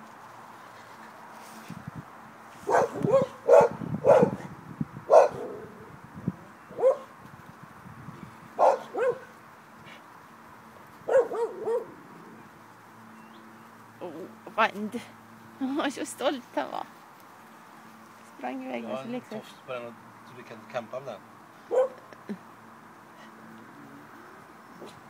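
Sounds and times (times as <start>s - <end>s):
puppies yapping and growling: 11.1s - 12.5s.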